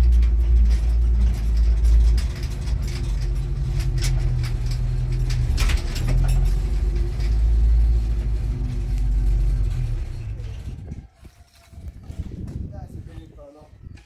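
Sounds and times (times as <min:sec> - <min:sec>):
vehicle engine running: 0:00.0 - 0:10.5.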